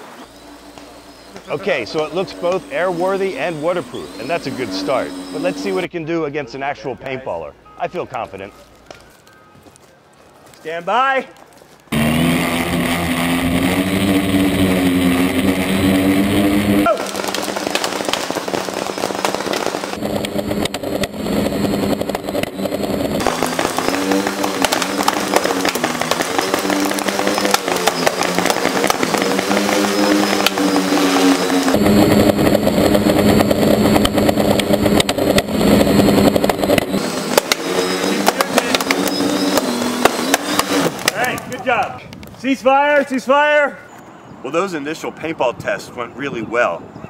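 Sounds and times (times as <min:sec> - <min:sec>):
drone propellers humming: 0:00.0 - 0:05.9, 0:11.9 - 0:41.6
quadcopter motors buzzing: 0:00.0 - 0:05.9, 0:11.9 - 0:41.8
paintball marker popping: 0:16.9 - 0:21.2, 0:33.8 - 0:41.5.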